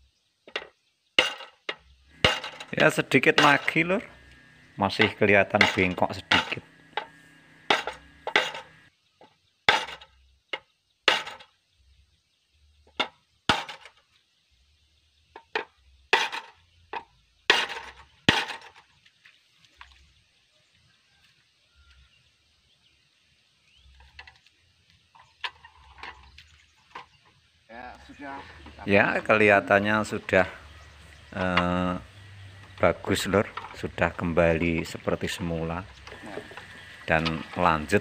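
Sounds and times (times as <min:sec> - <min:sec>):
hammer blows on metal: 0:02.2 - 0:08.8.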